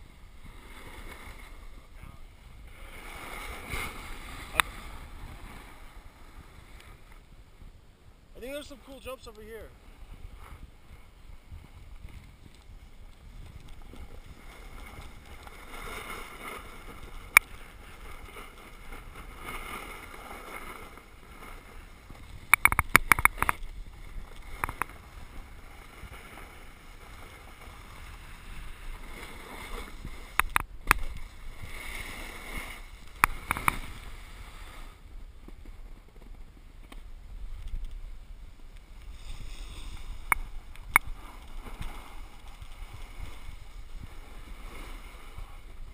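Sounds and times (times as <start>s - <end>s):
edges scraping over snow: 2.7s - 6.5s, 13.4s - 22.4s, 23.8s - 30.4s, 38.9s - 45.9s.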